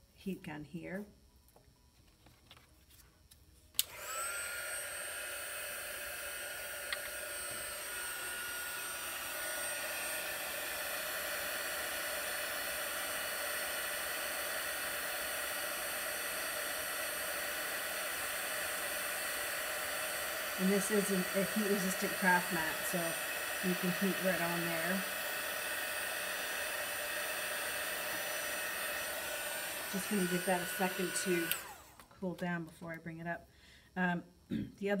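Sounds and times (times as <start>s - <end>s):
heat gun switch click: 3.8s - 4.0s, 6.9s - 7.2s, 31.4s - 32.1s
heat gun blowing whine: 3.8s - 32.9s.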